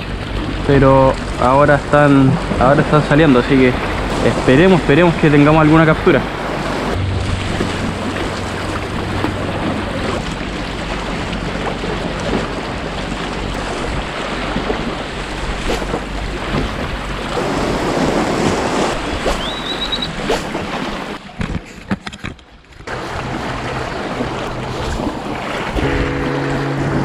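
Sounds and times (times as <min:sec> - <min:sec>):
wind buffeting microphone: 0:00.0 - 0:20.8
sea waves against rocks: 0:00.0 - 0:21.6, 0:22.7 - 0:27.0
short rising whistle: 0:19.4 - 0:20.2
low steady hum: 0:25.8 - 0:27.0.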